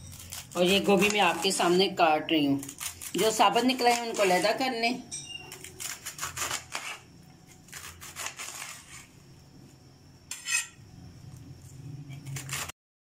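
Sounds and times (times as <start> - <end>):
knife cutting cabbage: 0.0 - 9.2, 11.6 - 12.7.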